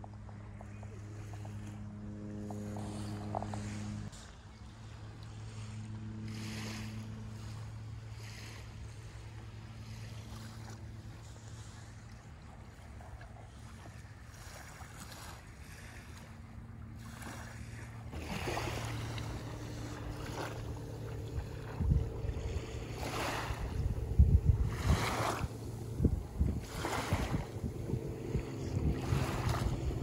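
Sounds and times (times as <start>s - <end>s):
low engine hum: 0.0s - 30.0s
small waves washing ashore: 0.0s - 30.0s
wind on microphone: 17.0s - 30.0s.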